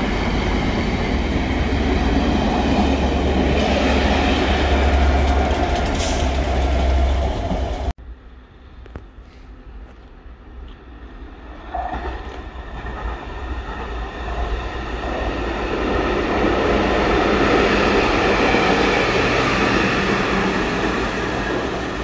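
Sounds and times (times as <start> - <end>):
train wheels on rails: 0.0 - 8.0.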